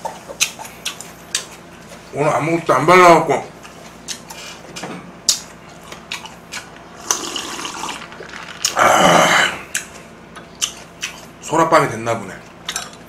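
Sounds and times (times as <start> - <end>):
person drinking: 7.0 - 10.1.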